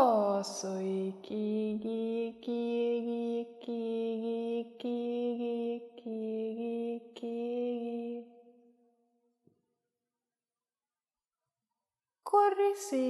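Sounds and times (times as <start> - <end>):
person chanting syllables: 0.0 - 8.4.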